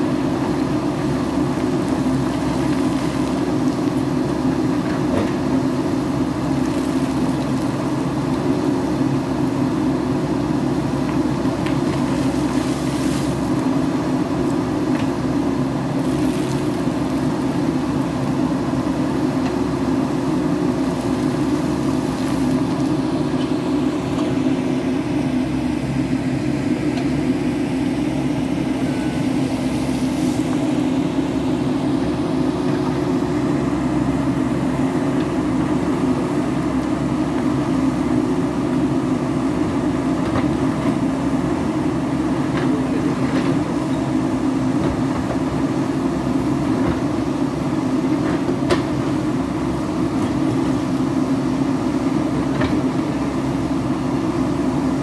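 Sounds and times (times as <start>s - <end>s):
diesel engine running under load: 0.0s - 55.0s.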